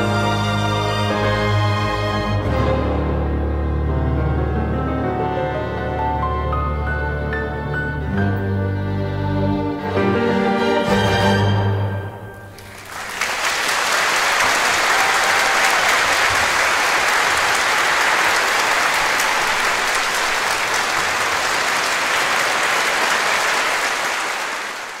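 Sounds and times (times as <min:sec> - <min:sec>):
audience applauding: 0:12.5 - 0:25.0.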